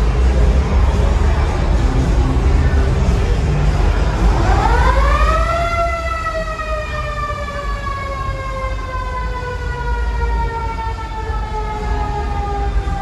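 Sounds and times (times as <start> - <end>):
low background noise: 0.0 - 13.0.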